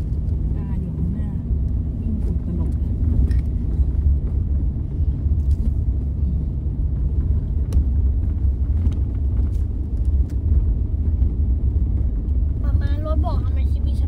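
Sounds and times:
truck engine and tyres rumbling: 0.0s - 14.0s
truck clicks and knocks over bumps: 6.8s - 12.6s.

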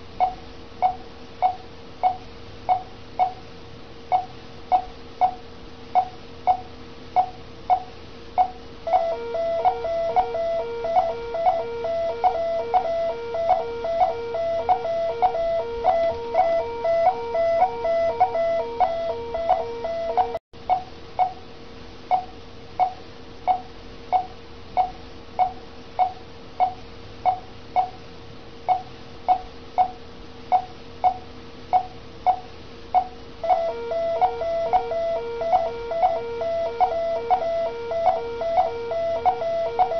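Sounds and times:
patient monitor beeping: 7.2s - 20.4s, 33.0s - 39.9s
pulsing medical alarm: 8.9s - 20.4s, 33.4s - 39.9s.

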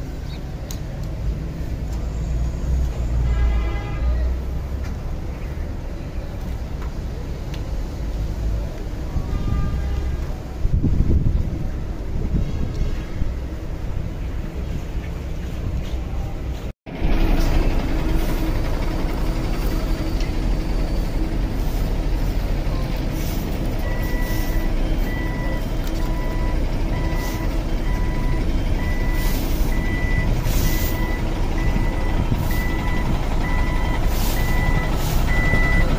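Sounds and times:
low rumble of vehicles: 0.0s - 35.9s
reversing alarm beeping: 23.8s - 35.9s.

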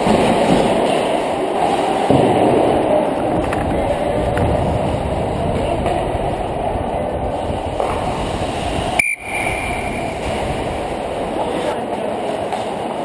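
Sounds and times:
skate blades on ice: 0.0s - 6.5s, 7.5s - 13.0s
wind over camera: 2.2s - 11.8s
steady high tone: 9.0s - 10.9s.

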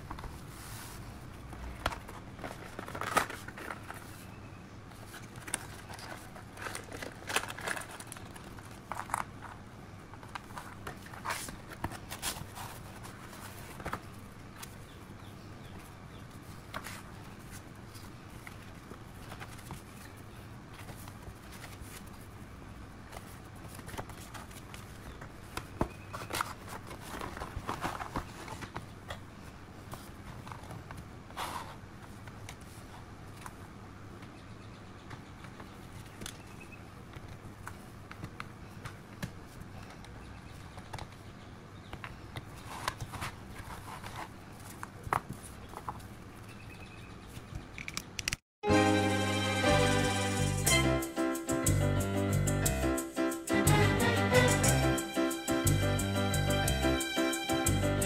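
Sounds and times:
paper rustling: 0.0s - 4.3s, 4.9s - 9.6s, 10.2s - 14.8s, 15.8s - 22.4s, 23.0s - 29.2s, 42.6s - 46.1s.

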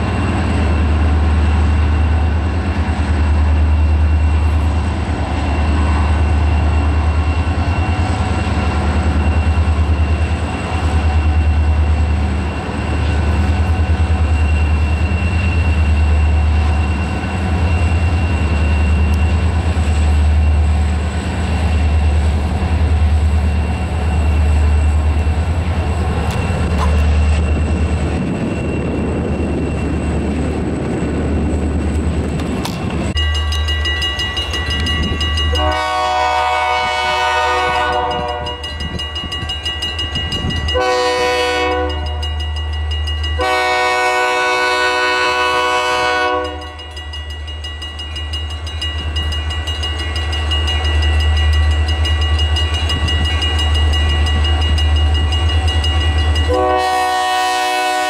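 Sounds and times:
train air horn blasts: 35.5s - 38.7s, 40.8s - 42.2s, 43.4s - 46.8s, 56.5s - 58.0s.

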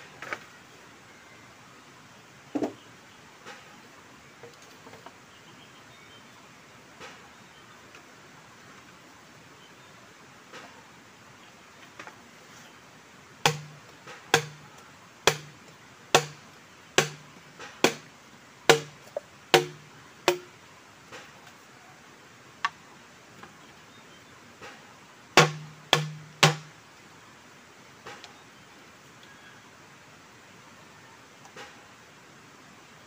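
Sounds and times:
machete chopping bamboo: 13.4s - 14.6s, 15.2s - 16.4s, 17.0s - 18.1s, 18.7s - 20.5s, 25.4s - 26.7s.

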